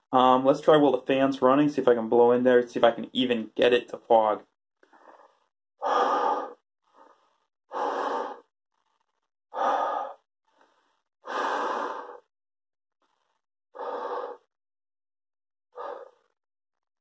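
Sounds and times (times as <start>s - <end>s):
faint inhalations: 4.8s - 12.3s, 13.0s - 14.5s, 15.8s - 16.4s.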